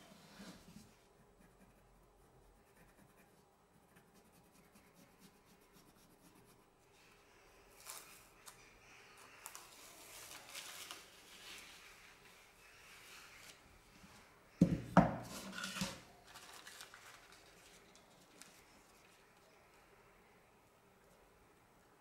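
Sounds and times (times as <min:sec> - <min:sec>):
pencil scratching on paper: 0:01.2 - 0:06.7.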